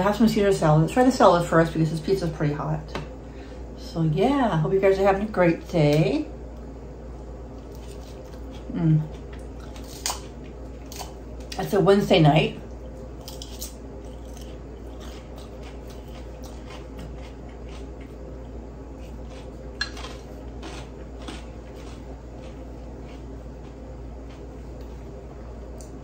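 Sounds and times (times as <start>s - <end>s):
chewing crisp lettuce: 7.6s - 11.7s, 13.0s - 25.0s.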